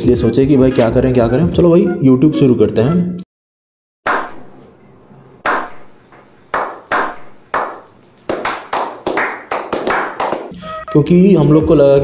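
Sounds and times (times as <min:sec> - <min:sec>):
hand claps with echo: 0:05.4 - 0:10.5.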